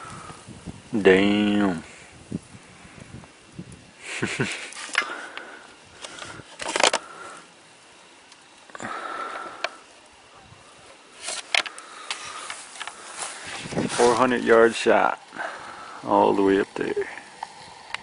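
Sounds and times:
paper crinkling and rustling: 11.2 - 14.8.

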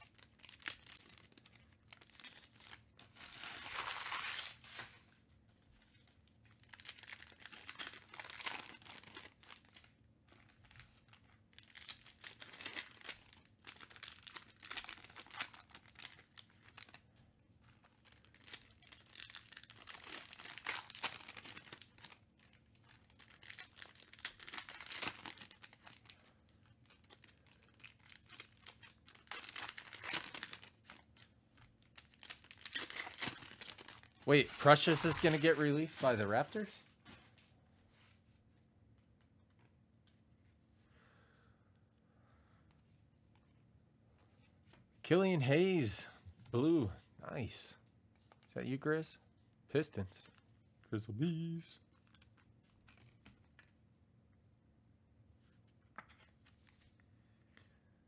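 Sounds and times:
foil packs tearing and crinkling: 0.0 - 5.0, 6.6 - 9.9, 10.6 - 17.0, 17.9 - 26.2, 26.9 - 31.2, 31.8 - 36.7.

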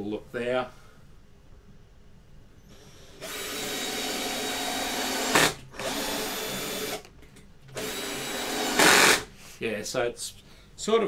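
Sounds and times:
cordless drill driving screw: 2.7 - 7.1, 7.8 - 9.3.

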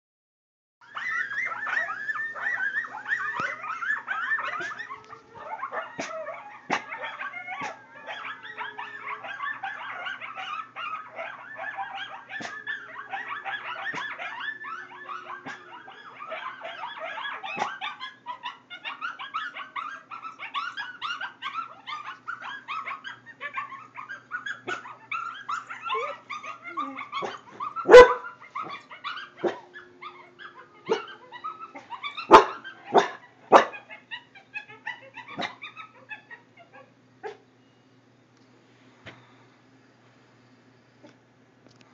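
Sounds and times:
wolves howling and yipping: 0.8 - 37.4
dog barking loudly: 27.2 - 28.8, 32.2 - 33.8.

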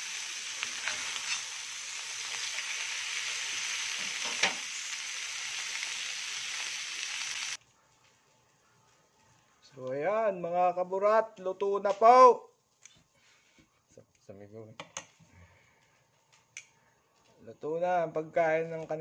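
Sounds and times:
steaks sizzling in a grill pan: 0.0 - 7.6.

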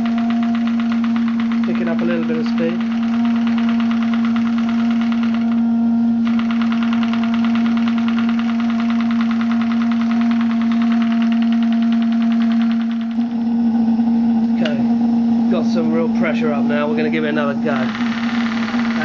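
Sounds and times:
model steam engine exhaust beats: 6.2 - 13.2.

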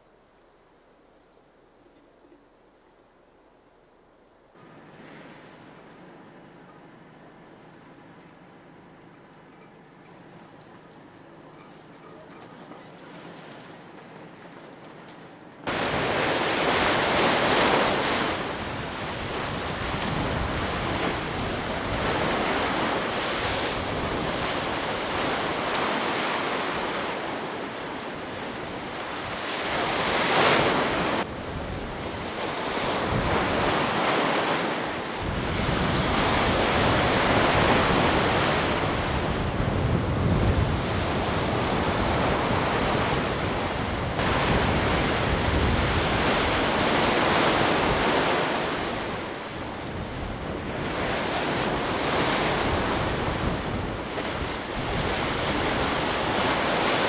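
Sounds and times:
wind buffeting microphone: 12.3 - 34.1, 35.0 - 57.0
surf breaking against embankment: 15.6 - 31.3, 32.1 - 49.5.

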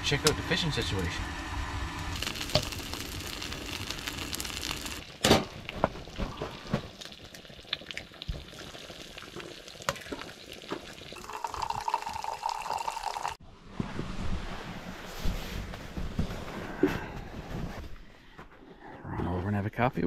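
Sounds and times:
sausages sizzling in a frying pan: 1.9 - 5.1, 6.9 - 11.8
coffee pouring into a mug: 7.0 - 13.4.

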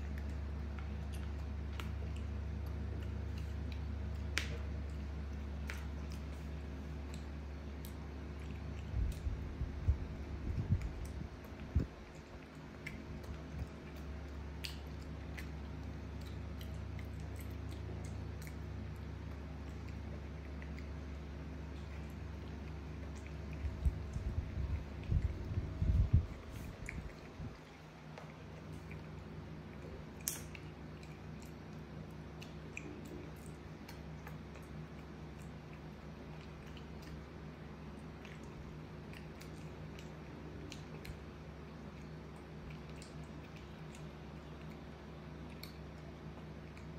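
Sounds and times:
monkey chewing and smacking: 0.0 - 46.9
steady low hum: 0.0 - 46.9.

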